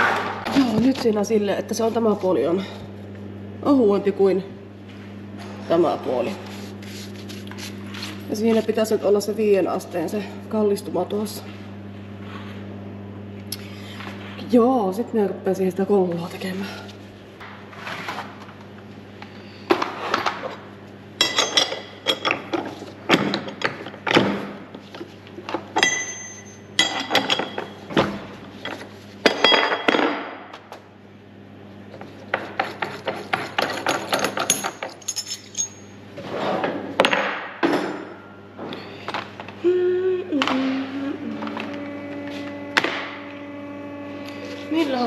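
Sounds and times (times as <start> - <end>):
steady low hum: 0.0 - 45.0
metal tools clinking: 21.2 - 22.4, 25.8 - 27.6, 33.6 - 36.0.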